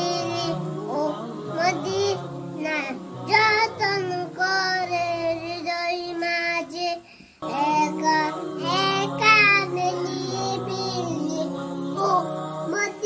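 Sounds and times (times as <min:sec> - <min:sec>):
boy singing devotional song: 0:00.0 - 0:13.0.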